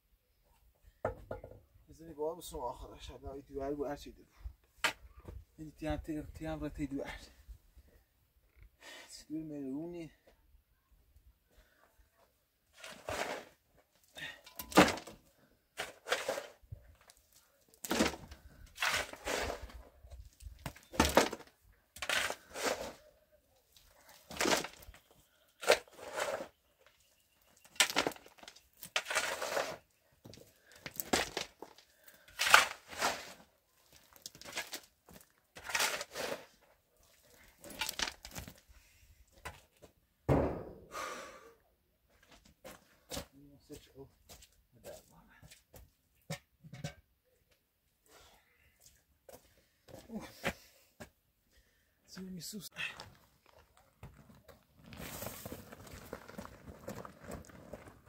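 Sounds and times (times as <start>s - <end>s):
shovel scraping into dry soil: 12.7s - 13.6s, 15.8s - 17.2s, 17.8s - 21.4s, 22.0s - 23.1s, 25.6s - 26.6s, 27.8s - 30.0s, 30.9s - 34.9s, 35.6s - 36.6s, 55.0s - 55.6s
soil thudding into metal wheelbarrow: 14.2s - 15.2s, 15.8s - 16.6s, 17.8s - 19.8s, 20.6s - 23.0s, 24.3s - 24.9s, 27.8s - 29.8s, 30.9s - 33.4s, 40.3s - 40.9s
heavy thud: 40.3s - 41.0s.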